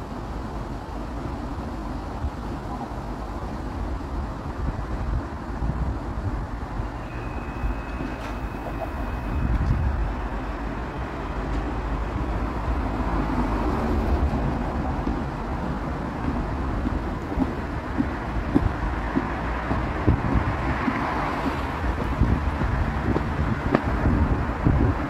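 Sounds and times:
wind buffeting microphone: 0.0s - 7.0s, 7.6s - 25.0s
light-rail train running away: 0.0s - 25.0s.

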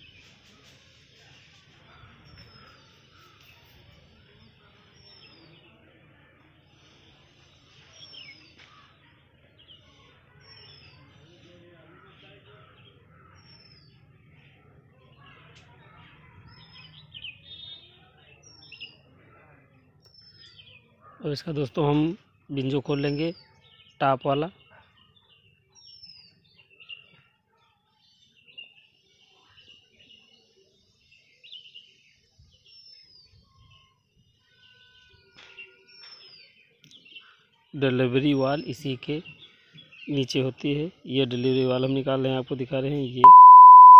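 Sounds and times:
faint birds chirping: 0.0s - 43.9s
birds chirping: 28.1s - 43.9s.

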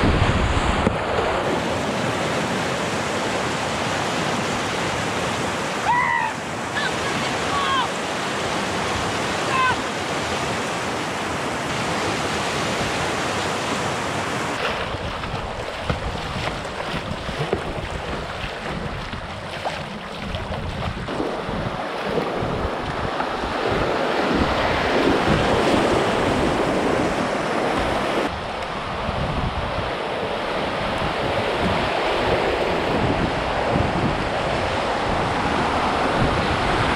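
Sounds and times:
wind buffeting microphone: 0.0s - 2.6s, 14.5s - 36.9s
water rushing around kayak: 0.0s - 36.9s
river rapids rushing: 1.4s - 20.1s.

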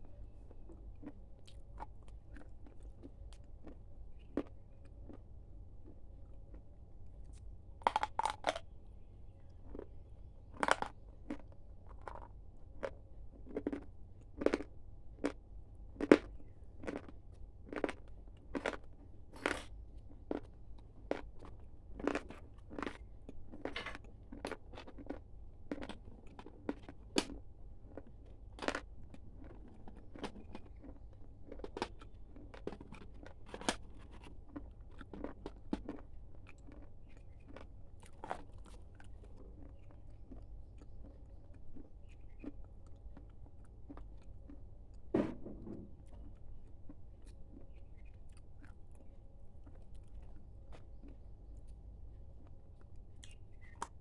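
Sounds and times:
corn snacks crunching: 0.7s - 5.2s, 7.3s - 8.6s, 9.6s - 9.9s, 10.5s - 15.4s, 16.0s - 44.6s.

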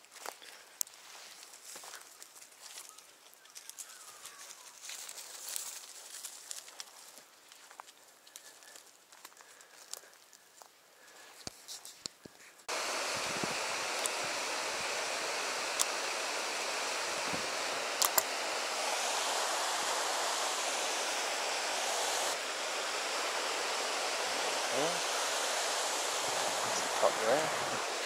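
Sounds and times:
river rushing over rapids: 12.7s - 28.0s
sharp clicks: 18.0s - 18.4s.

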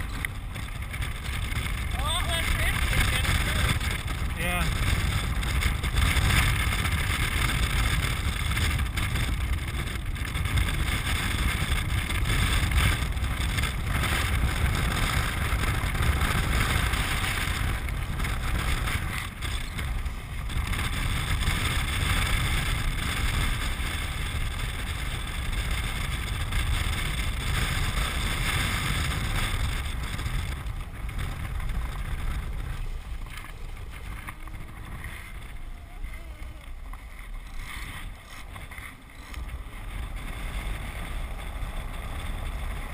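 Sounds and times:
wheels rumbling on hard ground: 0.0s - 42.9s
wind buffeting microphone: 0.0s - 42.9s.

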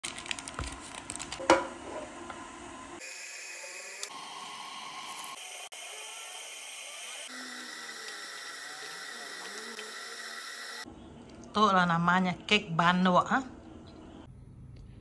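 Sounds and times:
baking paper crinkling: 0.0s - 1.4s.

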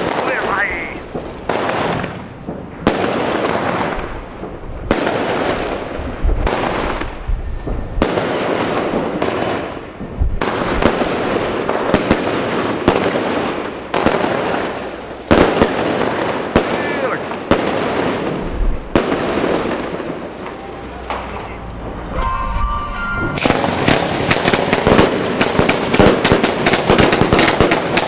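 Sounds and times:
fireworks bangs: 0.0s - 28.0s
fireworks crackling: 0.0s - 28.0s.

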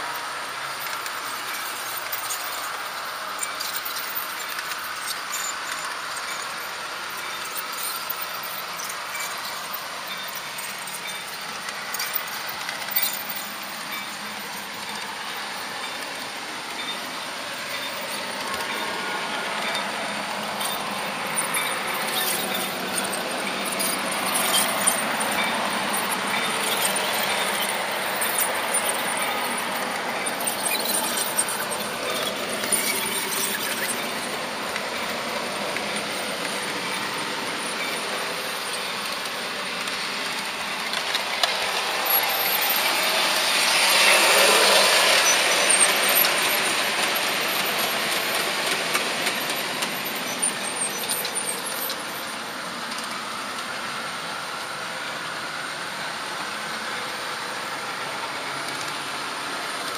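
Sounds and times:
model train wheels and motor whir: 0.0s - 59.9s
light track clicks: 10.1s - 53.7s, 57.8s - 59.9s.

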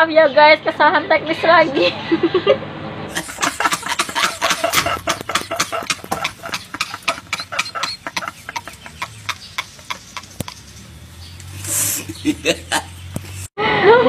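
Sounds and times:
men laughing hard: 1.8s - 10.7s, 11.6s - 13.5s.

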